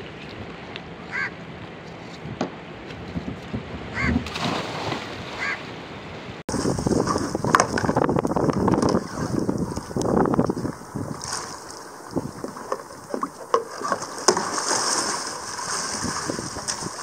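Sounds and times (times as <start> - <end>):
wind buffeting microphone: 0.0 - 5.4, 6.1 - 13.4, 15.6 - 17.0
wind: 0.0 - 17.0
honk-like calls: 1.1 - 1.3, 3.9 - 4.2, 5.4 - 5.7
splash of person into water: 4.2 - 5.4, 13.7 - 17.0
water sloshing: 6.5 - 17.0.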